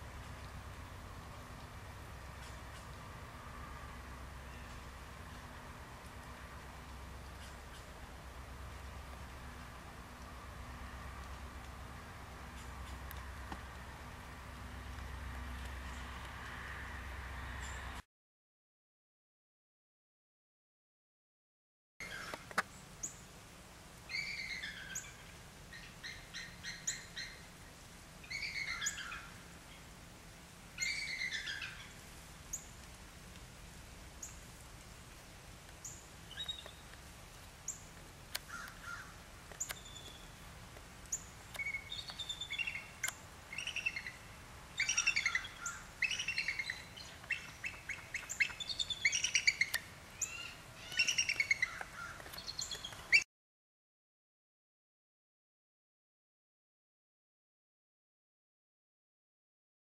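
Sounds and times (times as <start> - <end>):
eagles chittering calls: 41.1 - 44.2, 44.8 - 53.2.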